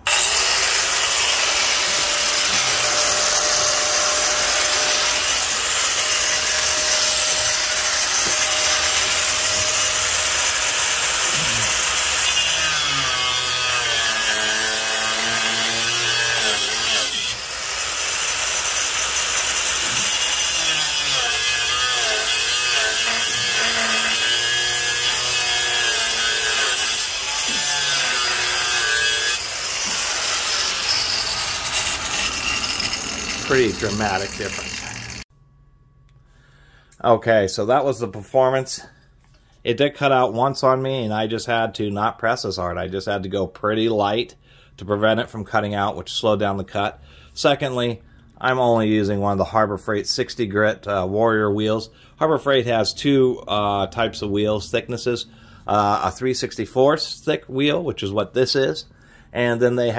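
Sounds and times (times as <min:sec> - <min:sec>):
cut-off wheel grinding steel: 0:00.0 - 0:35.2.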